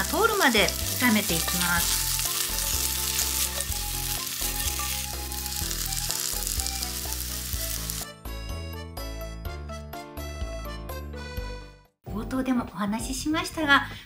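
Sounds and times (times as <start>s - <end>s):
food sizzling in frying pan: 0.0s - 8.1s
background music: 0.0s - 14.0s.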